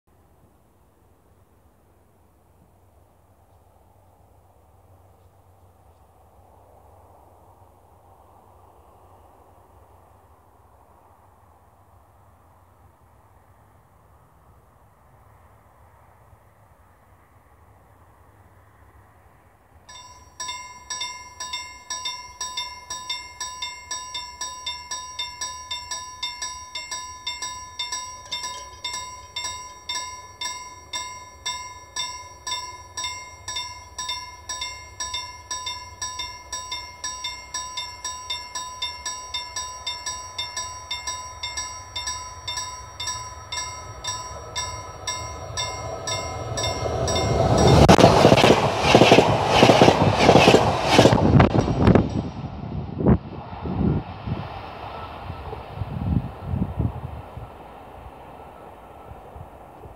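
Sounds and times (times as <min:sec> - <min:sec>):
approaching electric train: 0:03.7 - 0:59.9
level crossing warning bell: 0:19.9 - 0:52.6.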